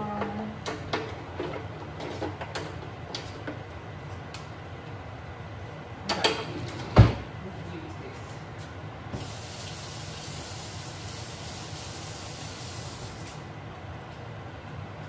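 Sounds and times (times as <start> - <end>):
steady high hiss: 9.2 - 13.4.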